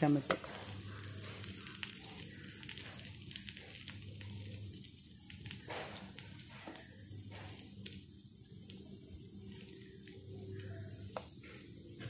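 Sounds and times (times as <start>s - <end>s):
oil sizzling in a pan: 0.0s - 12.0s
small crackles: 0.1s - 11.7s.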